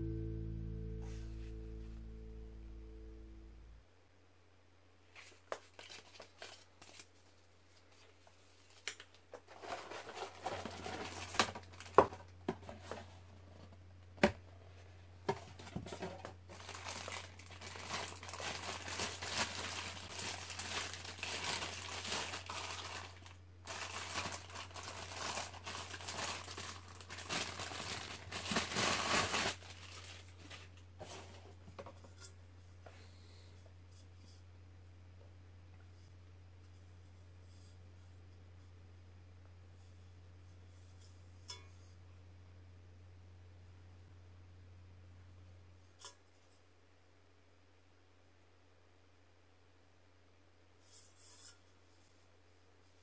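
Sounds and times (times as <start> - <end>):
low steady hum: 0.0 - 8.8, 9.5 - 53.0
packaging crinkling: 5.3 - 7.2, 8.7 - 12.3, 16.5 - 30.8.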